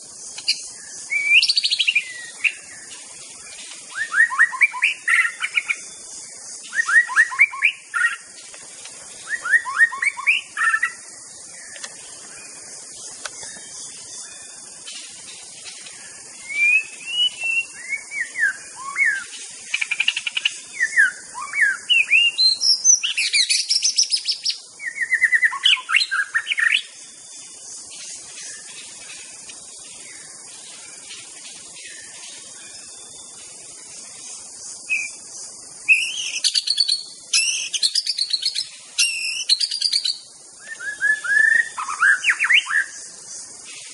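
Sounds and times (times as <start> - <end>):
bird singing whistles and trills: 0.0 - 8.4, 9.1 - 43.9
steady high hiss: 0.0 - 43.9.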